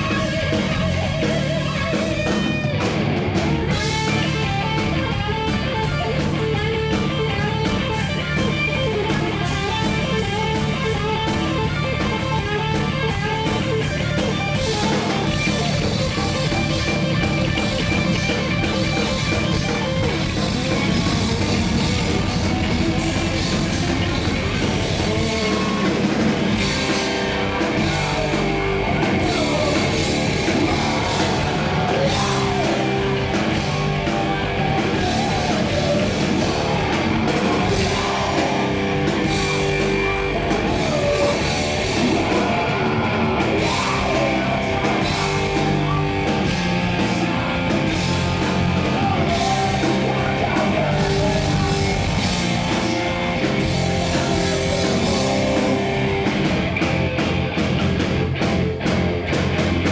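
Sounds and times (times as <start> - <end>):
drum kit: 0.0 - 59.9
electric guitar: 0.0 - 59.9
person singing: 24.6 - 56.2.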